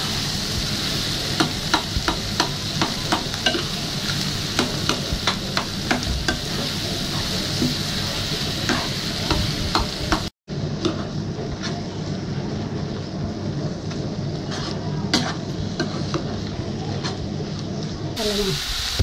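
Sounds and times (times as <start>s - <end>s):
food sizzling in a frying pan: 0.0s - 13.0s, 18.2s - 19.0s
spatula scraping a pan: 14.3s - 17.2s.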